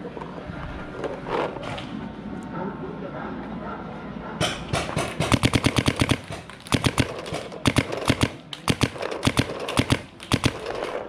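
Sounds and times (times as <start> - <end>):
paintball marker firing: 4.8 - 11.0.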